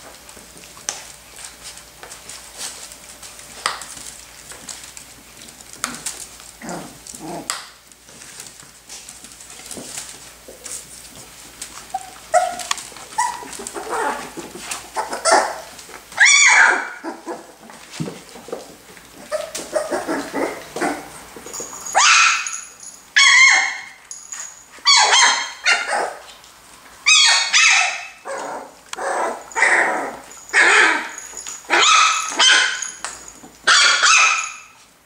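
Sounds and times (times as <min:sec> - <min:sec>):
puppy yapping barks: 0:16.2 - 0:17.4, 0:22.0 - 0:22.6, 0:24.9 - 0:26.2, 0:27.1 - 0:29.9, 0:30.5 - 0:33.0, 0:33.7 - 0:34.8.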